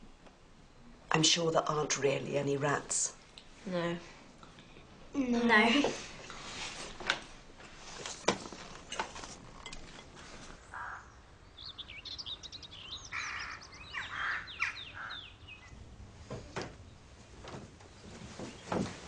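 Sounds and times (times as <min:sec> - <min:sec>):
songbirds chirping: 0:07.7 - 0:19.0.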